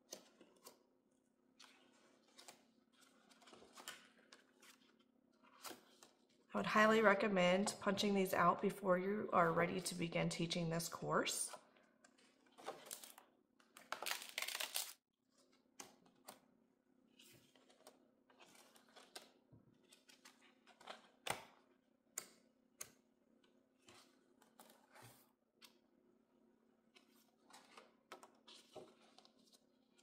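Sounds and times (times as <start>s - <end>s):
faint paper clicks and rustles: 0.0s - 6.5s, 17.1s - 25.8s, 26.8s - 30.0s
pages turning: 1.6s - 6.4s, 12.1s - 16.4s, 17.1s - 21.6s, 26.9s - 30.0s.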